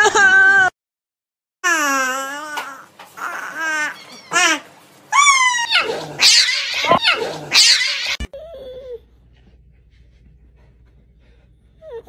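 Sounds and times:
cat yowling: 5.2s - 8.3s.

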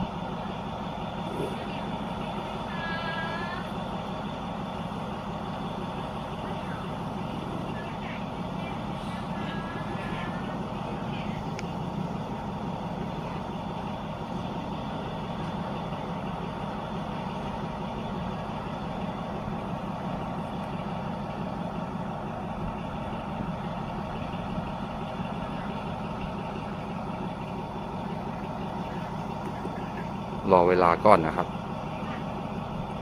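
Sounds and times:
diesel locomotive idling: 0.0s - 33.0s.

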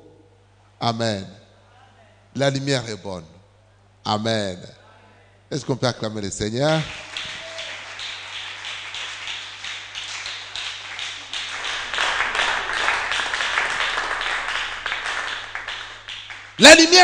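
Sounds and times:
congregation applauding: 6.7s - 17.0s.

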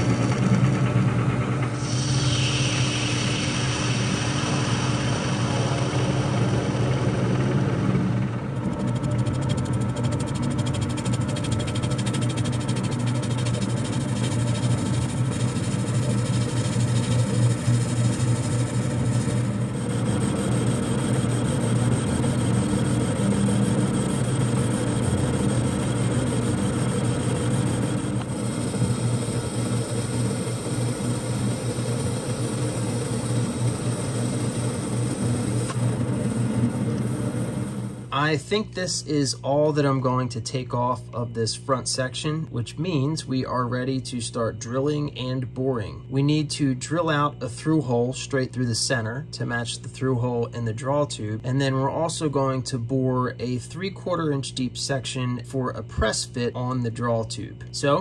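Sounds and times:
lathe motor hum: 0.0s - 38.1s
cutting tool scraping metal: 8.6s - 28.8s.

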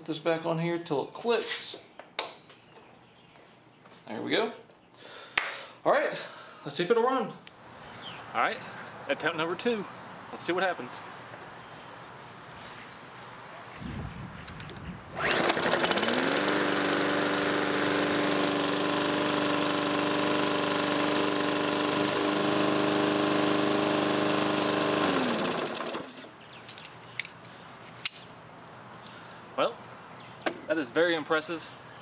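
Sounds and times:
lawn mower engine running: 14.5s - 26.4s.

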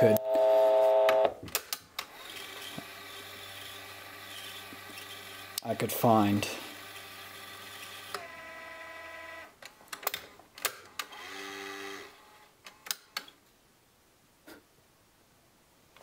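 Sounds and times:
steady electronic tone: 0.0s - 1.3s.

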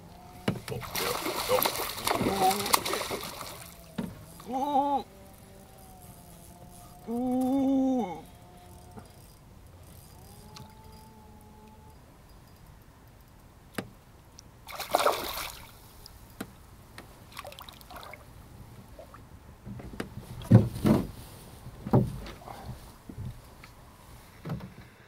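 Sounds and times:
water sloshing: 0.4s - 7.0s, 14.7s - 15.8s
fish splashing: 0.6s - 7.2s, 14.7s - 15.8s.

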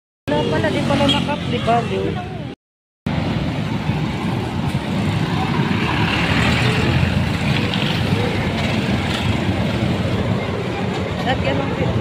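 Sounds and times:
bus engine rumbling: 0.3s - 12.0s
motorcycle passing: 4.4s - 10.2s.

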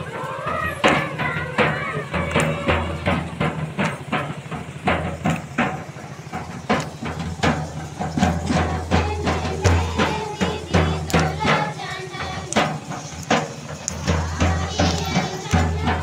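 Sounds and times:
large drum beaten in rhythm: 0.0s - 16.0s.

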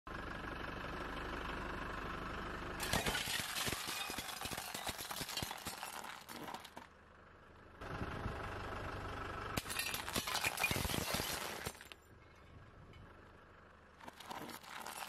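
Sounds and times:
glass tubes crunching under tyre: 2.8s - 6.9s, 9.6s - 12.5s, 14.0s - 15.0s.

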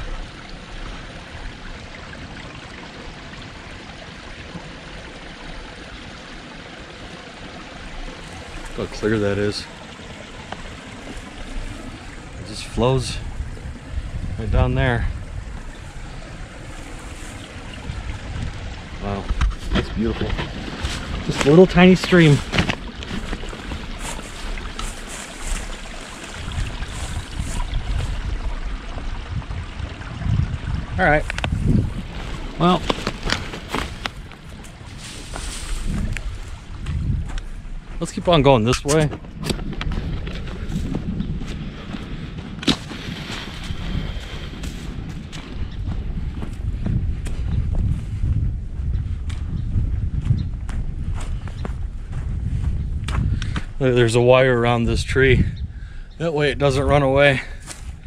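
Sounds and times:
stream water flowing: 0.0s - 46.7s
low rumble: 39.2s - 53.4s.

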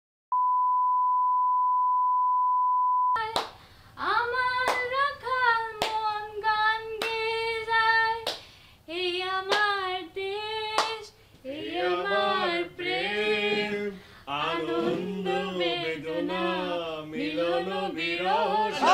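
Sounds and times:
woman singing unaccompanied: 4.0s - 8.3s, 8.9s - 13.0s.

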